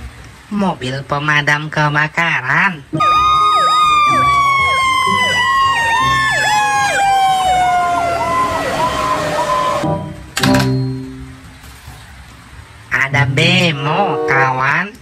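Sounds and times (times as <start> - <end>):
siren wailing: 3.0 - 9.9
siren yelping: 3.0 - 9.9.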